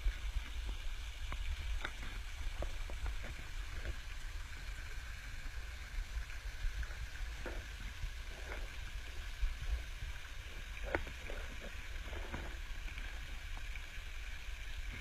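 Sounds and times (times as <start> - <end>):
small splashy ticks: 0.0 - 4.2
pool water lapping and splashing: 0.0 - 15.0.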